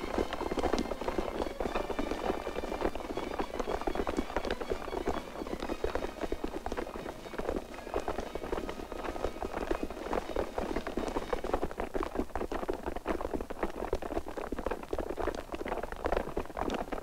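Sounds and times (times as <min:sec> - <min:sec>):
low steady hum: 0:00.0 - 0:12.3.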